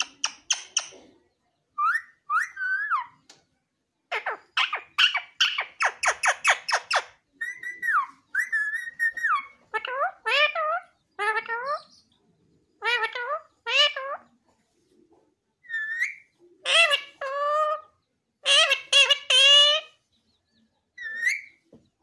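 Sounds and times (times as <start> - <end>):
sharp parakeet calls: 4.1 - 12.0, 15.7 - 20.0.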